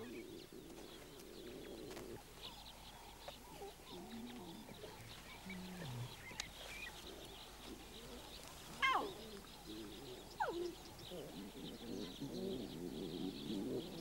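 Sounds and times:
small birds chirping: 0.0 - 14.0
low cooing notes: 7.0 - 14.0.

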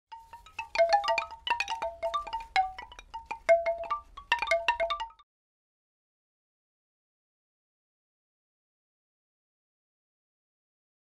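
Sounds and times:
tinkling chime notes: 0.2 - 5.2.

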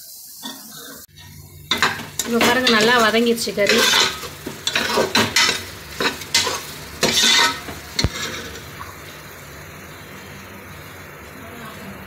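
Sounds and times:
faint frying sizzle: 0.0 - 12.0
metal spoon scraping a pot: 1.7 - 8.6.

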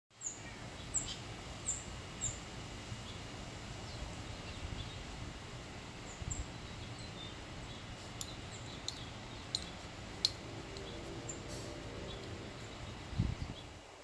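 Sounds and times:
steady low rumble: 4.8 - 13.8.

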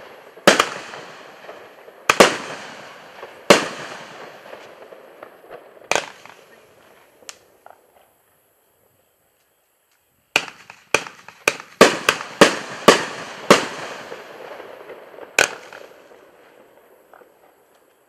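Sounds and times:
firework bangs with echo: 0.0 - 6.8, 10.4 - 17.4
small firework pops: 0.0 - 8.2, 9.4 - 14.2, 15.3 - 18.0.

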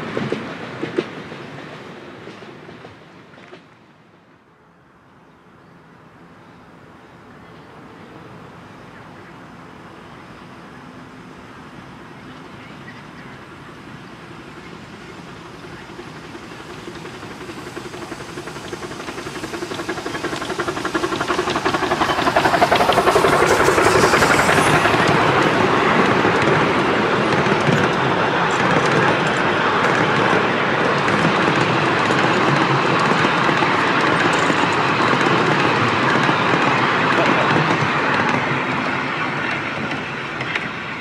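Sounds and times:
rail noise: 0.0 - 41.0
coaches rattling on rails: 8.4 - 41.0
hiss of steam: 9.2 - 41.0
steam locomotive exhaust beats: 13.3 - 41.0.

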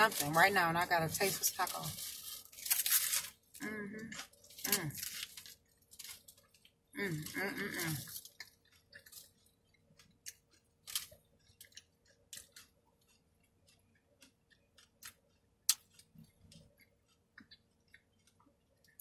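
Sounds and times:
crunchy chewing: 1.1 - 19.0
wet mouth clicks: 14.8 - 16.2.

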